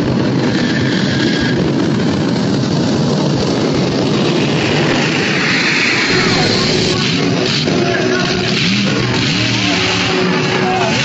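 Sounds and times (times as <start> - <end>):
jet engine roaring: 3.3 - 8.4.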